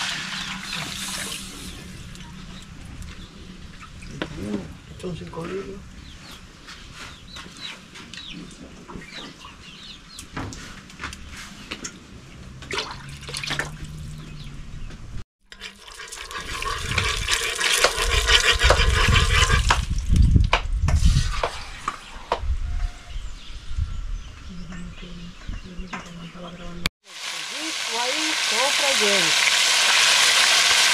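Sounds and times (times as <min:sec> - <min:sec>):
chicken frying in hot oil: 0:00.0 - 0:01.8, 0:15.5 - 0:19.8, 0:27.0 - 0:30.9.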